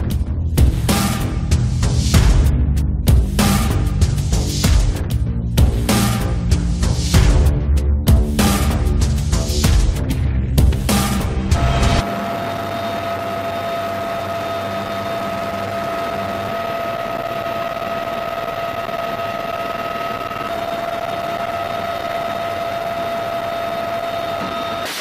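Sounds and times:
helicopter running: 11.6 - 24.8.

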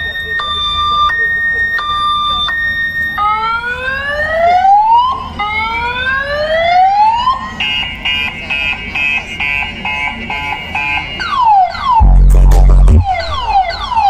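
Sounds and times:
falling siren sweeps: 0.0 - 7.4, 11.2 - 14.0
siren whoops: 0.0 - 7.4, 11.2 - 14.0.

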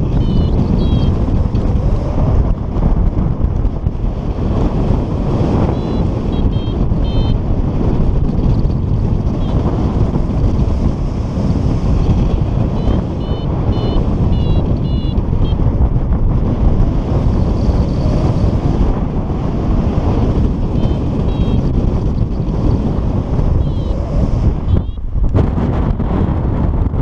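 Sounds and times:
high electronic beeps: 0.0 - 1.1, 5.7 - 7.4, 12.7 - 15.6, 20.8 - 21.7, 23.6 - 24.0, 24.7 - 25.0
wind rushing over microphone: 0.0 - 27.0.

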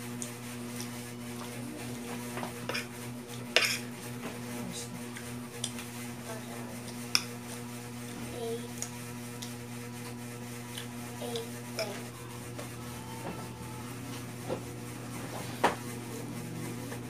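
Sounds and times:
low electrical hum: 0.0 - 17.0
soft chewing and mouth sounds: 4.6 - 5.9, 6.8 - 12.7.

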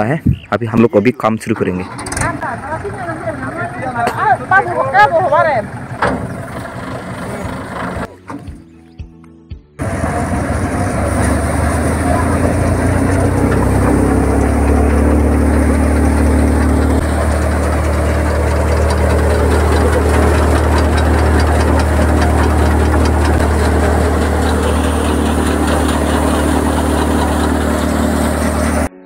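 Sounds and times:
tractor engine hum: 0.7 - 8.7, 9.8 - 29.0
fine rapid rattle: 9.8 - 28.9
thresher drum: 9.8 - 28.9.

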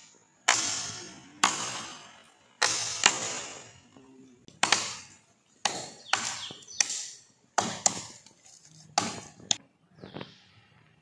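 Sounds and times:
chopping blows into palm trunk: 9.0 - 9.4.

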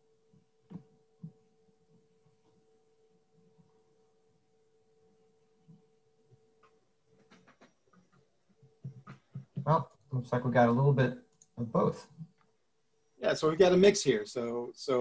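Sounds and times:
faint steady hum: 0.0 - 15.0
soft clicks: 5.6 - 10.1, 11.2 - 11.6.

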